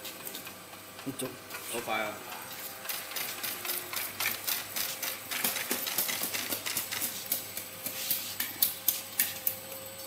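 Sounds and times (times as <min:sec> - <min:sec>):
labeling machine clicking and clattering: 0:02.3 - 0:07.2.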